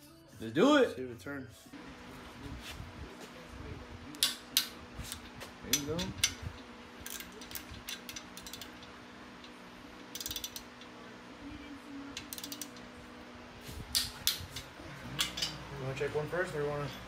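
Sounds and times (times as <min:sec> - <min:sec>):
socket ratchet clicking: 0:07.0 - 0:08.9, 0:10.0 - 0:10.9, 0:12.2 - 0:12.8.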